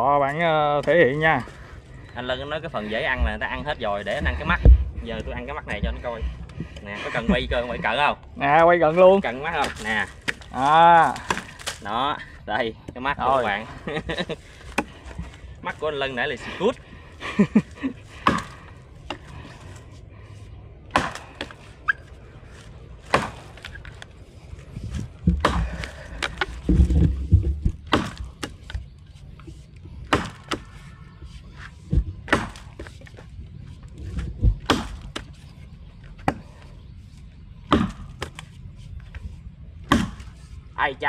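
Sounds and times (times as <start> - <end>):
axe chopping log: 9.5 - 11.8, 14.7 - 15.2, 18.2 - 19.3, 20.8 - 21.7, 23.0 - 23.8, 25.2 - 28.8, 30.0 - 30.9, 32.0 - 33.0, 34.5 - 35.4, 37.6 - 38.5, 39.8 - 40.4.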